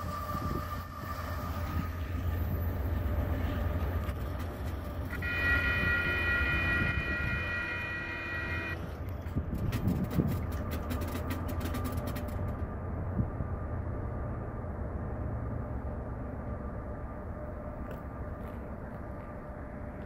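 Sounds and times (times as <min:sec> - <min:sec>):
freight train rumbling: 0:00.0 - 0:20.0
steady high multi-pitch tone: 0:05.1 - 0:08.8.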